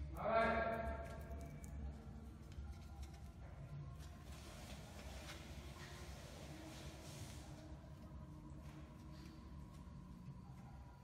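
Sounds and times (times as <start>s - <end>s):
low steady hum: 0.0s - 11.0s
small brush swishing on wood: 4.1s - 8.2s.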